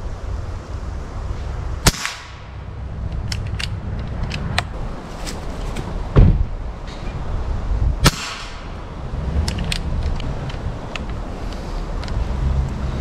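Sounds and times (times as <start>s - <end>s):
wind rumbling on microphone: 0.0s - 13.0s
air rifle shot: 1.8s - 2.6s, 8.0s - 8.8s.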